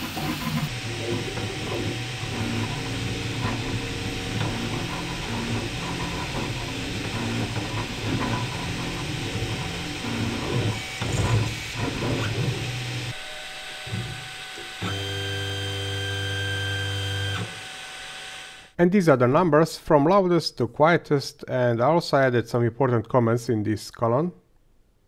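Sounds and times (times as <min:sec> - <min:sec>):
stepper motors buzzing: 0:00.0 - 0:18.7
steady motor whine: 0:00.4 - 0:18.7
fans running: 0:00.7 - 0:13.2.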